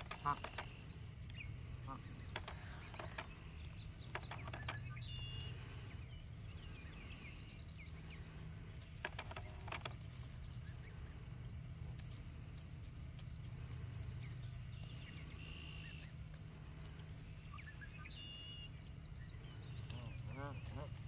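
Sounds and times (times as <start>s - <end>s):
sharp clicks: 0.0s - 1.4s, 2.2s - 5.5s
goslings peeping: 0.0s - 21.0s
steady low hum: 0.0s - 21.0s.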